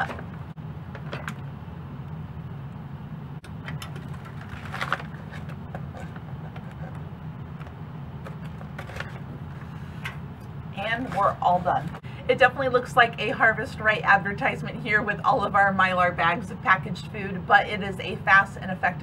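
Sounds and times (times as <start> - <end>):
low machine hum: 0.0 - 19.0
foil bag crinkling: 3.9 - 6.1.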